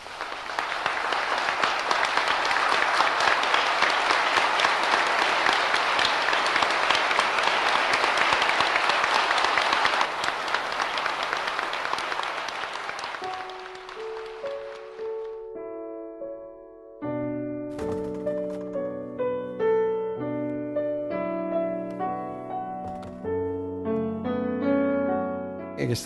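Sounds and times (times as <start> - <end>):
crowd applauding: 0.0 - 15.5.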